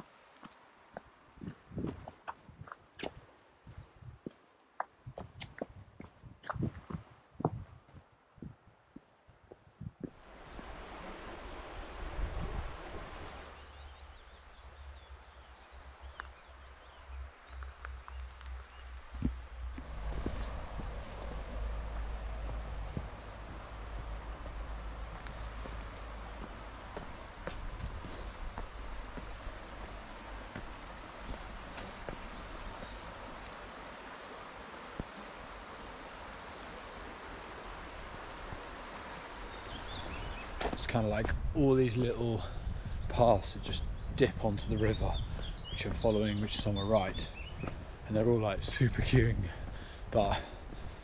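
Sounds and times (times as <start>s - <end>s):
river rushing water: 10.2s - 13.6s, 19.7s - 40.9s
small birds singing: 13.3s - 51.0s
low steady rumble: 19.6s - 34.0s.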